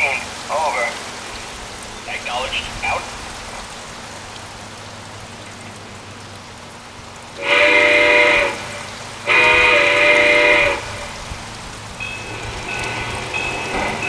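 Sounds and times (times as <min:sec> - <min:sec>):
water trickling in pond waterfall: 0:00.0 - 0:14.0
multi-tone steam whistle: 0:07.4 - 0:11.2.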